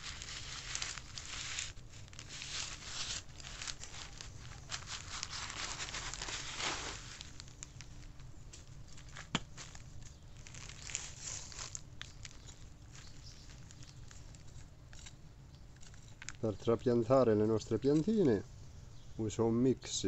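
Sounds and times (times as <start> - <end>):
plastic film crinkling and tearing: 0.0 - 15.1, 15.7 - 16.6.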